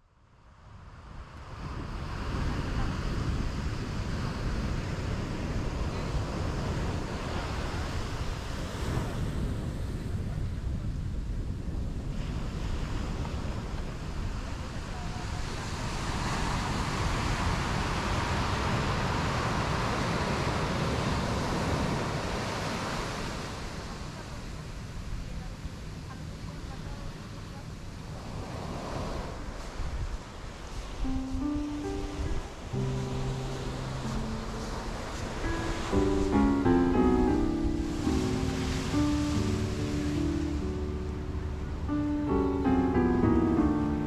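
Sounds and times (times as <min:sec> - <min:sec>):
ocean waves rushing: 0:28.1 - 0:44.0.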